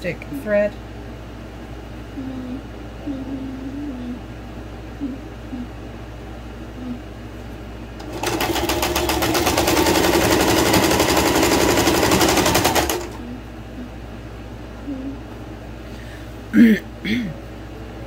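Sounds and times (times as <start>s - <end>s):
sewing machine stitching: 8.0s - 13.2s.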